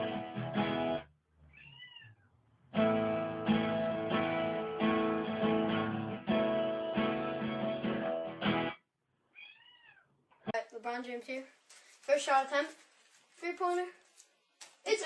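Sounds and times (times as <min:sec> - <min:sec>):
strummed acoustic guitar: 0:00.0 - 0:01.0, 0:02.8 - 0:08.8
cat meow: 0:01.5 - 0:02.3, 0:09.3 - 0:10.2.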